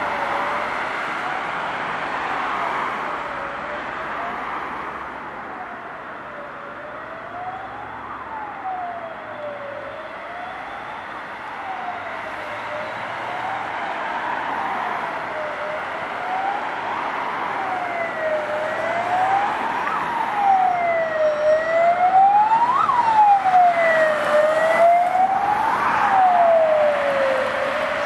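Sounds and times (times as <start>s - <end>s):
electronic siren wailing: 17.6s - 28.0s.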